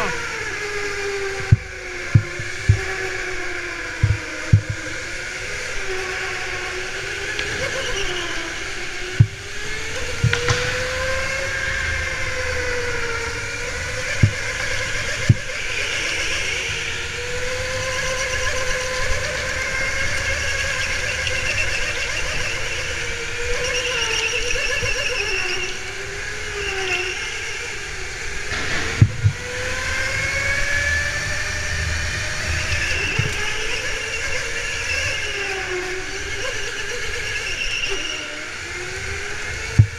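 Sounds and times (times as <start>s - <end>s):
go-kart drive whine: 0.0s - 39.9s
sharp knocks: 1.4s - 3.0s, 4.0s - 5.0s, 14.2s - 15.5s, 28.5s - 29.8s.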